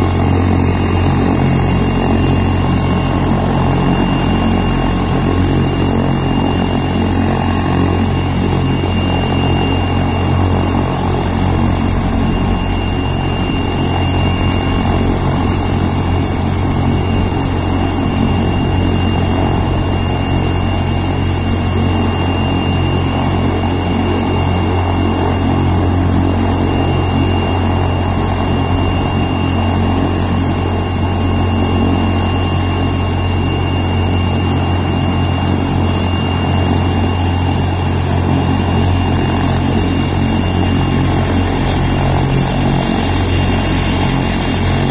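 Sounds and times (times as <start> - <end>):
faint higher whine: 0.0 - 33.7
helicopter rotor and engine drone: 0.0 - 44.9
high turbine whine: 0.0 - 44.9.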